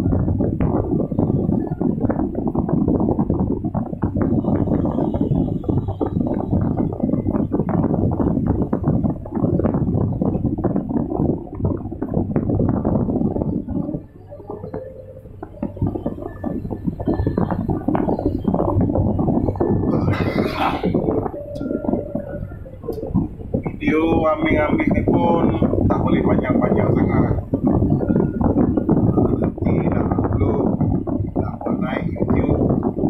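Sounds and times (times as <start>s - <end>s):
excavator engine hum: 0.0s - 33.0s.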